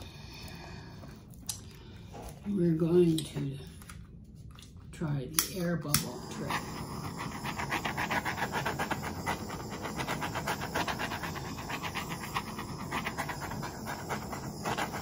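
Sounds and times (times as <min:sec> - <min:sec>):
butane torch flame hissing: 0:05.8 - 0:15.0.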